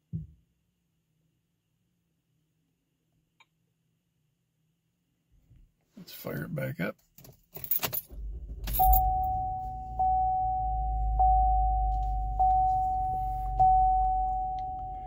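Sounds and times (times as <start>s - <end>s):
car engine starting and idling: 7.6s - 15.0s
dashboard warning chime: 8.7s - 15.0s.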